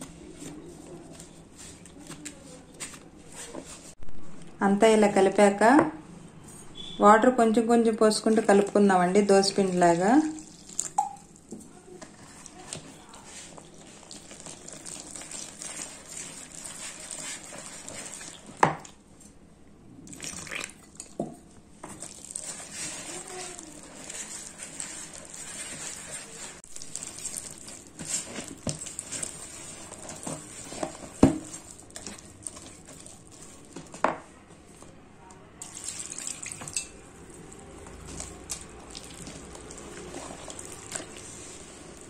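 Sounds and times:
whisk scraping batter: 12.0s - 18.6s, 21.9s - 34.0s, 35.6s - 42.0s.

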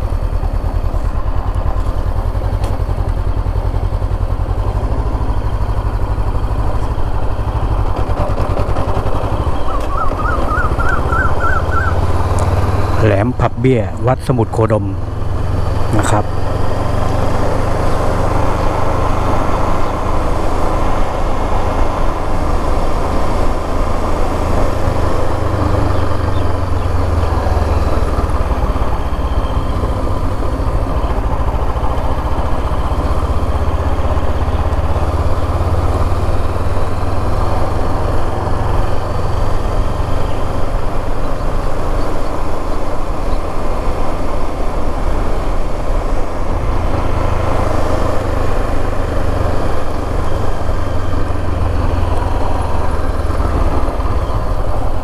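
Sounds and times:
motorcycle engine cruising: 0.0s - 55.0s.

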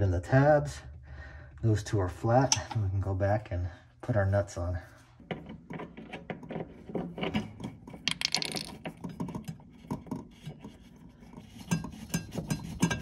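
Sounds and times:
small clicks and knocks: 5.3s - 10.4s.

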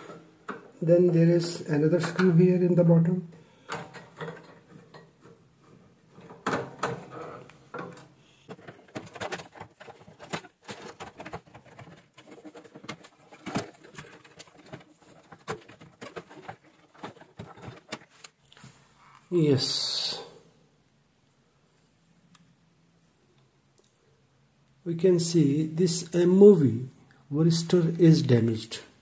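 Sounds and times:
plastic panel being handled: 1.4s - 18.4s.

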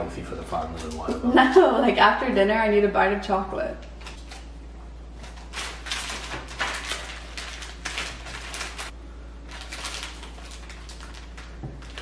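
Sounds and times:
plastic wrappers crinkling: 4.0s - 4.5s, 5.1s - 12.0s.

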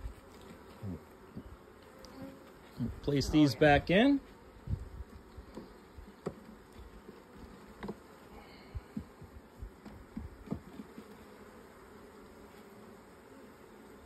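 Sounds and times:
honeybees humming: 0.0s - 14.0s
wooden hive frames knocking: 4.7s - 8.1s, 8.7s - 11.2s.

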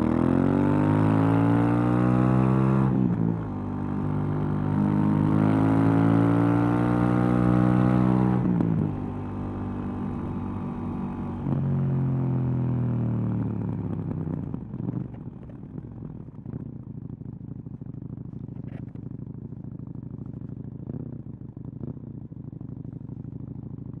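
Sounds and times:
motorcycle engine idling: 12.9s - 24.0s.

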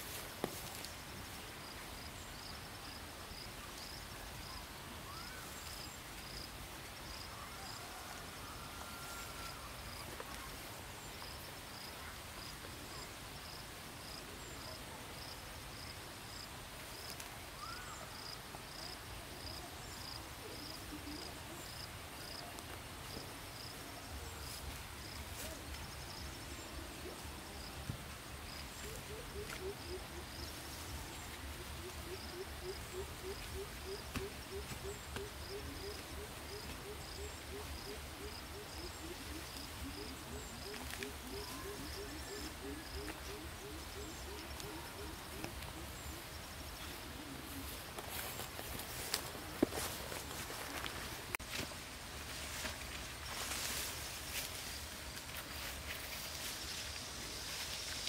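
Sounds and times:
faint outdoor hush: 0.0s - 58.0s
insect chirping: 28.5s - 46.8s.

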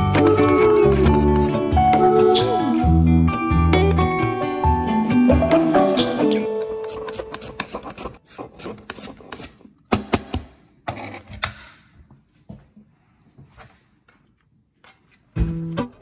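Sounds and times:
mandoline slicer rasping: 6.7s - 9.6s.

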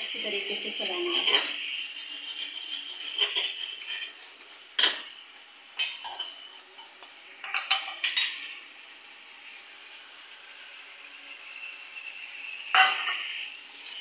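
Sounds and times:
masala frying in oil: 0.0s - 14.0s
metal spatula scraping metal pan: 2.4s - 4.2s.

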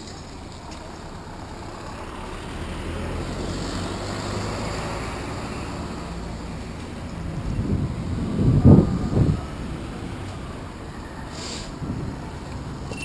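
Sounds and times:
street traffic: 0.0s - 13.0s
wind rushing over microphone: 6.9s - 10.9s, 11.7s - 12.9s.

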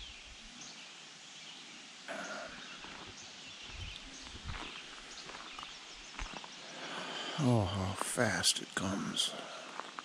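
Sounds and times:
faint bird chirps: 0.0s - 8.0s
steady outdoor hiss: 0.0s - 10.0s
footsteps on sandy dirt: 2.6s - 10.0s.

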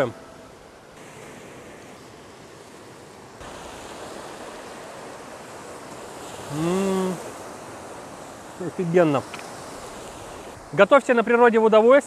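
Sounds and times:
sea surf: 0.0s - 12.0s
wind: 0.0s - 12.0s
man saying mmm: 6.5s - 7.3s.

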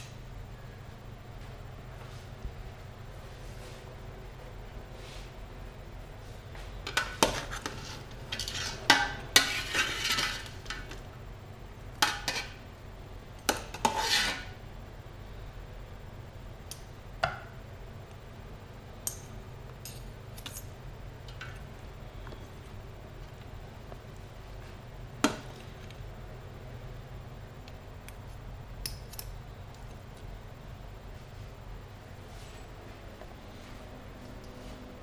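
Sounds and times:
ladle scraping metal pot: 7.0s - 10.6s, 13.7s - 14.5s.

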